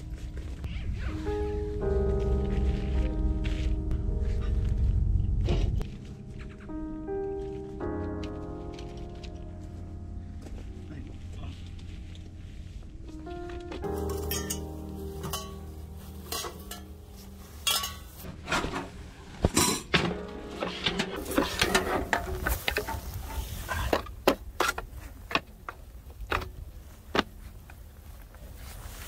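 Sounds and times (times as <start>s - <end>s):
cookware and utensils clinking: 14.0s - 17.0s, 17.6s - 18.8s, 19.5s - 24.0s.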